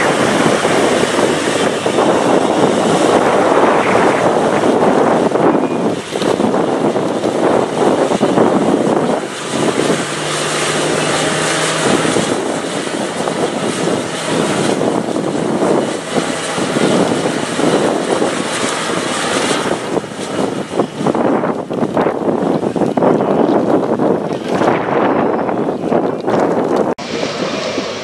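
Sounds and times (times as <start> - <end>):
diesel engine revving under load: 0.0 - 20.5.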